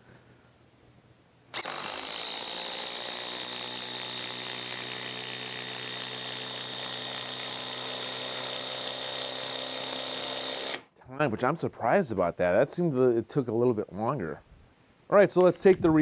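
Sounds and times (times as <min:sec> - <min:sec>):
impact driver whining: 0:01.6 - 0:10.9.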